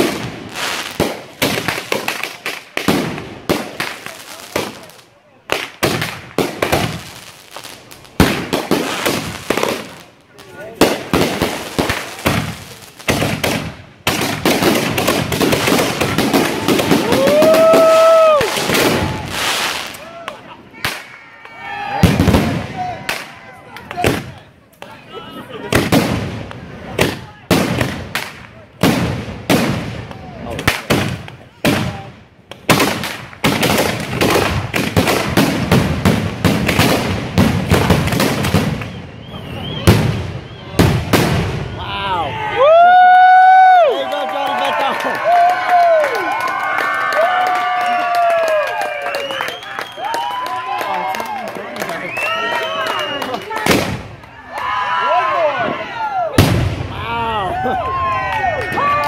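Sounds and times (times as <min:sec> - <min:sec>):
fireworks bangs: 0:00.0 - 0:25.0, 0:25.6 - 0:43.2, 0:44.5 - 0:54.4, 0:55.6 - 0:58.0
rapid fireworks crackling: 0:00.0 - 0:54.4, 0:56.3 - 0:59.0
firework shells bursting: 0:10.8 - 0:20.1.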